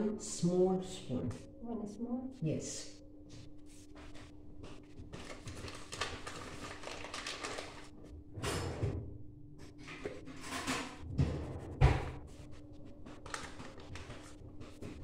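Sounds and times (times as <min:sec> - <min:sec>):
steady low hum: 0:00.0 - 0:05.2.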